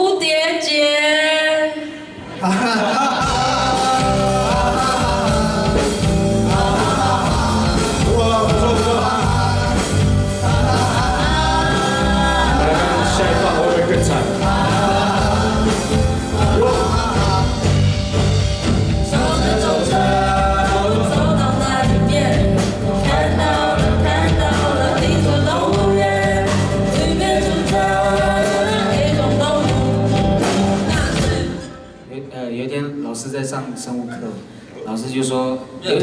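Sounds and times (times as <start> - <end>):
lead singer singing: 2.8 - 31.9
live rock band playing: 2.8 - 32.1.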